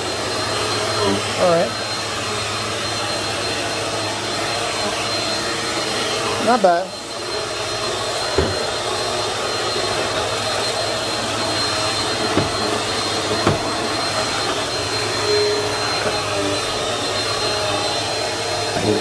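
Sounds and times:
vacuum cleaner running on carpet: 0.0 - 19.0.

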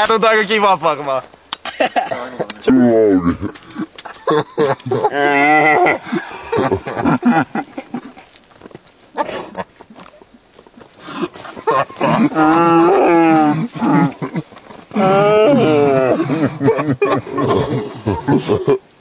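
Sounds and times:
man making wavering wordless sounds: 2.6 - 6.0.

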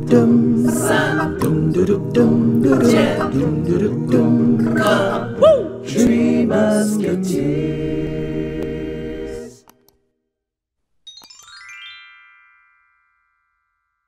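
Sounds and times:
voices singing a jingle: 0.0 - 9.6
rising chime notes: 11.1 - 14.0.

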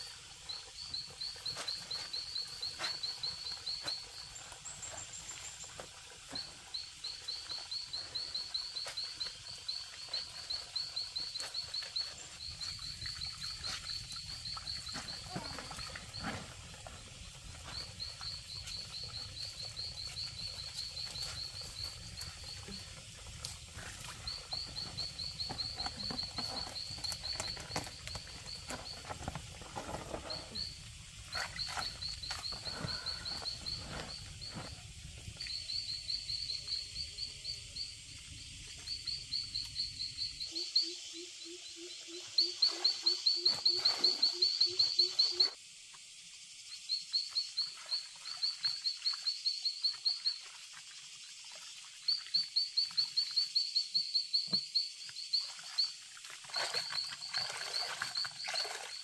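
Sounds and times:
clothes washed in water basin: 8.7 - 34.4, 55.4 - 59.0
animal high pulsing call: 40.5 - 45.6.

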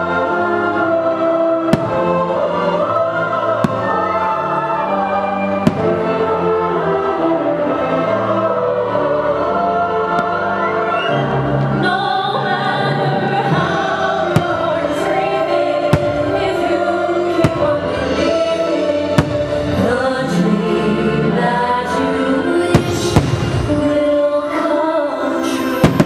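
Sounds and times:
music with choir singing: 0.0 - 26.0
firework bangs: 5.7 - 6.0, 19.1 - 19.8, 22.8 - 23.8, 25.8 - 26.0.

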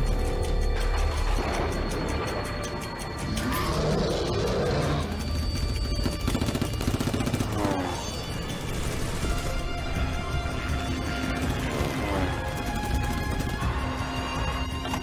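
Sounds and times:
low drone: 0.0 - 15.0
music: 0.0 - 15.0
rapid gunfire: 5.6 - 9.6, 10.9 - 15.0.

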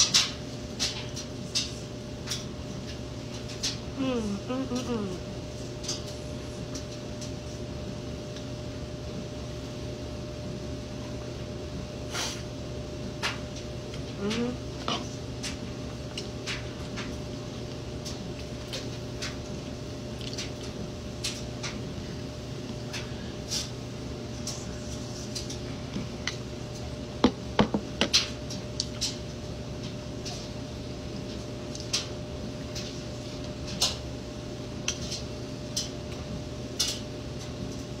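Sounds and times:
steady low hum: 0.0 - 38.0
person chewing close to microphone: 13.9 - 21.8, 28.5 - 29.2
wet chewing and lip-smacking: 20.1 - 21.4
lip smacks and mouth clicks: 20.2 - 20.7.

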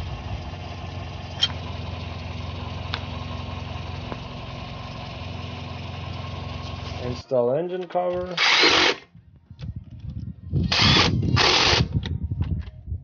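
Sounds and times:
car engine idling: 0.0 - 7.4.

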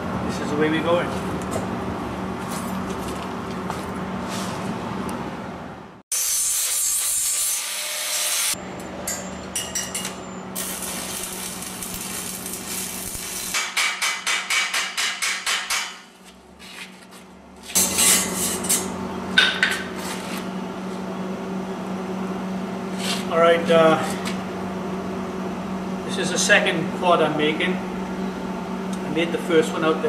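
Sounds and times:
steady hum: 8.5 - 15.1.

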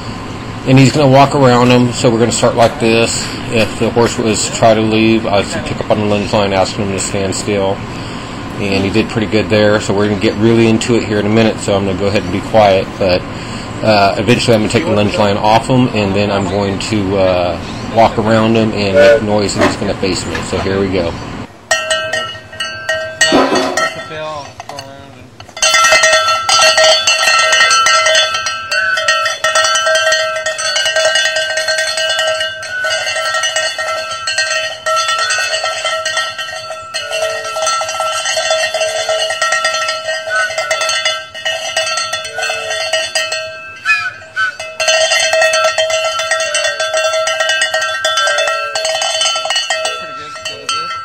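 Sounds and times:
noisemaker ringing and rattling: 0.0 - 51.0.

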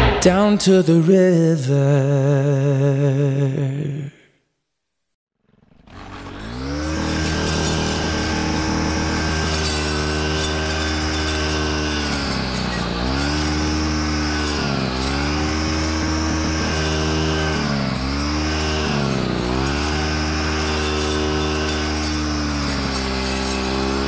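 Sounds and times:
brush cutter engine at high revs: 5.5 - 24.0.

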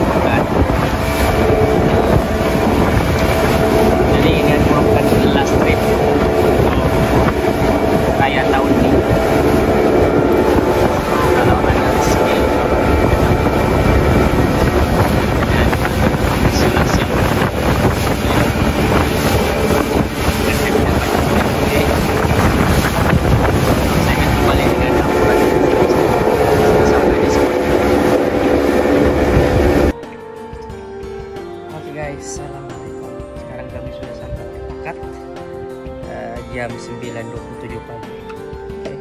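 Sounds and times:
wind noise on microphone: 0.0 - 30.0
boat motor running: 0.0 - 36.8.

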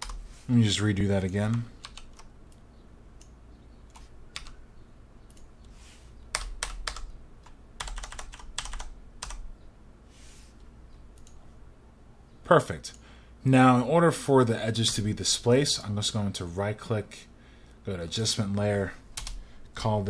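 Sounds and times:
keyboard keys clicking: 1.3 - 2.6, 3.2 - 4.6, 6.3 - 9.4.

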